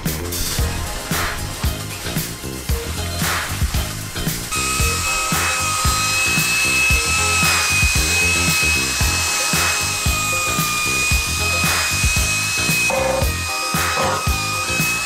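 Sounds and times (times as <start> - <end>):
background music with beat: 0.0 - 15.0
cordless drill whining: 4.4 - 15.0.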